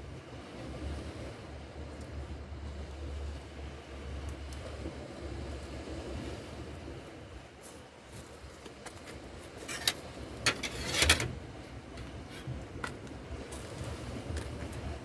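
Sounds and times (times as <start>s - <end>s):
wind rumble on microphone: 0.0s - 10.6s, 11.2s - 15.0s
fishing tackle clicks and rustles: 7.8s - 13.1s.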